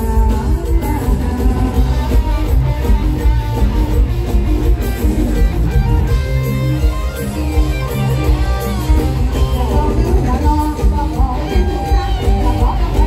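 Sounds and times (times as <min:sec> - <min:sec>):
bass: 0:00.0 - 0:13.0
electric guitar: 0:00.0 - 0:13.0
live band through loud speakers: 0:00.0 - 0:13.0.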